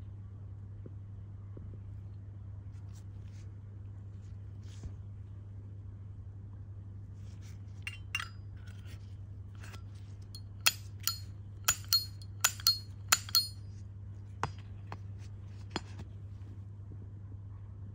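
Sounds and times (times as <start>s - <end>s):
steady low hum: 7.1s - 17.9s
metal lighter lid clicking: 10.7s - 13.5s.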